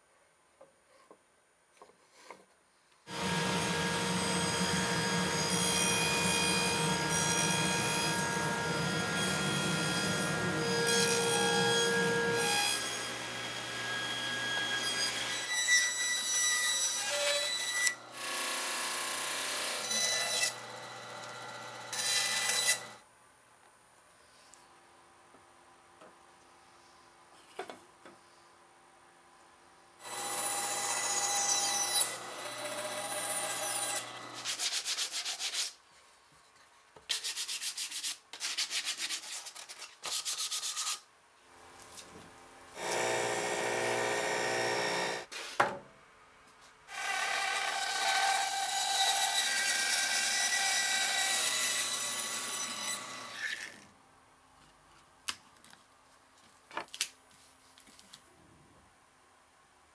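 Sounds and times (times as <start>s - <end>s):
bandsaw cutting wood: 3.1s - 15.4s, 30.0s - 34.6s, 42.8s - 45.3s, 46.9s - 53.8s
table saw whining: 3.1s - 23.0s, 30.0s - 34.4s, 42.8s - 45.3s.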